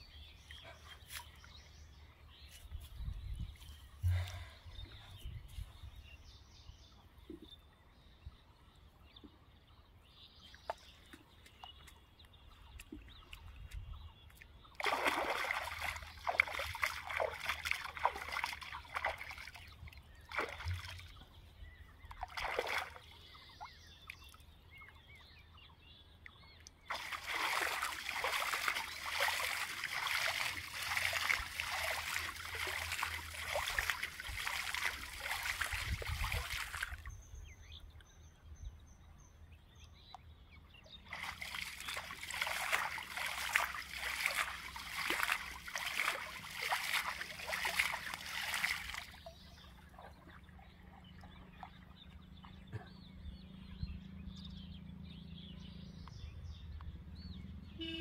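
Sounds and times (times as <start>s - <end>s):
pond water splashing: 10.4s - 38.1s, 40.9s - 54.2s, 57.8s - 58.0s.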